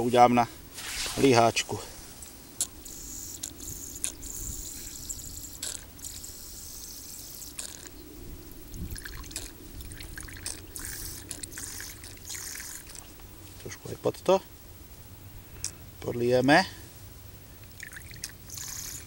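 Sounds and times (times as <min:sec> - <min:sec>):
liquid trickling and dripping: 0:08.6 - 0:13.3, 0:17.6 - 0:19.0.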